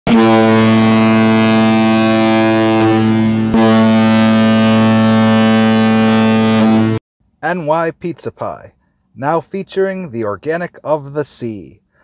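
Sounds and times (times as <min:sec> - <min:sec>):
ship's horn blast: 0:00.1 - 0:07.0.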